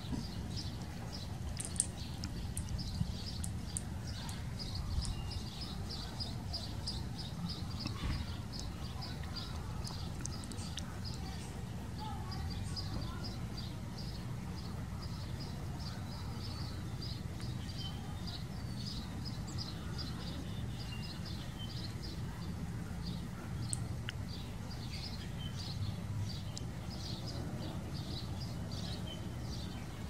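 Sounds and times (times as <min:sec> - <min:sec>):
squirrel gnawing acorn clicks: 0:00.6 - 0:05.2, 0:07.8 - 0:11.3.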